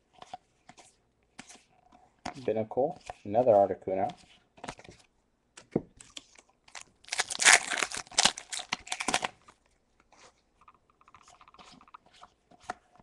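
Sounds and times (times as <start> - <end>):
foil wrapper tearing and crinkling: 6.7 - 9.4.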